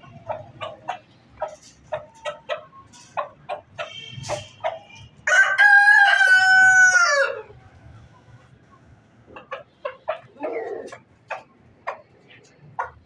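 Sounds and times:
rooster clucking: 0.0s - 13.0s
rooster crowing: 5.3s - 7.5s.

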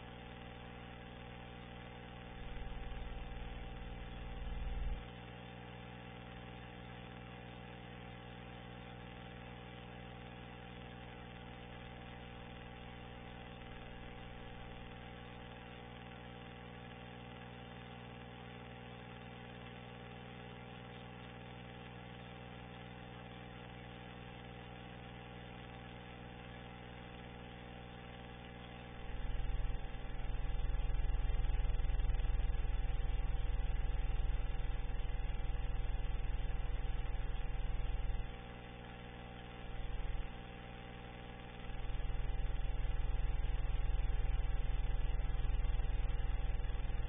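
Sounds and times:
steady low hum with buzz: 0.0s - 47.0s
deep rumble: 2.4s - 5.0s, 29.0s - 38.4s, 39.6s - 40.4s, 41.5s - 47.0s.

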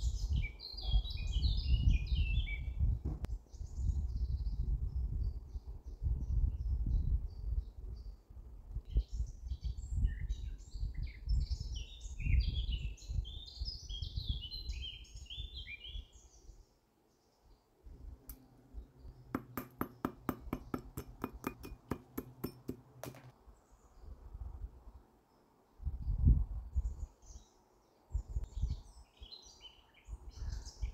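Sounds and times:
birds chirping: 17.2s - 24.1s.

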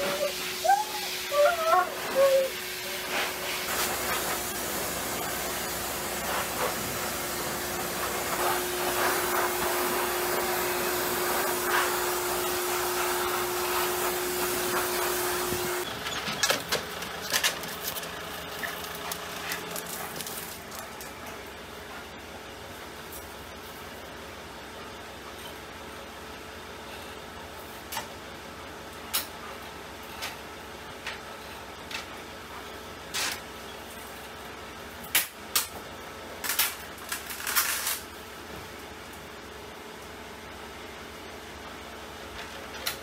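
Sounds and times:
blow dryer whooshing: 1.9s - 15.8s.

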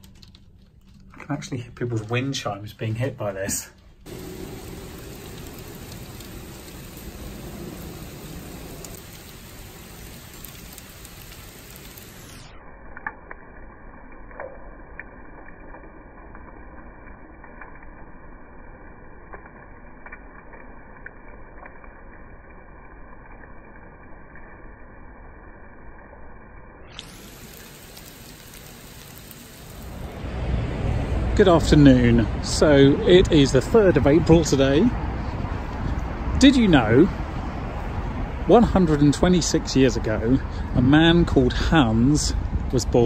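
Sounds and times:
hailstones pattering on a roof: 0.0s - 2.4s, 3.4s - 12.4s, 27.0s - 30.2s
sharp ticks of hailstones: 4.0s - 24.6s, 26.9s - 30.3s.

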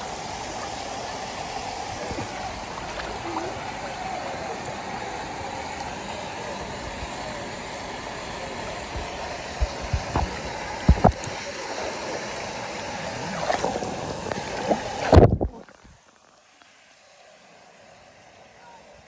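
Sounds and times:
dull quiet murmur: 0.0s - 15.8s
pool water sloshing and splashing: 0.0s - 17.8s
sharp splashes: 12.9s - 15.8s.

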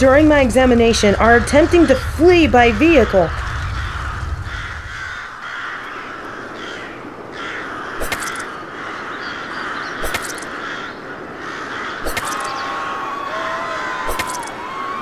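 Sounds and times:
crows cawing: 2.7s - 15.0s
sharp crack: 7.9s - 8.6s, 12.0s - 12.8s, 13.8s - 14.7s.

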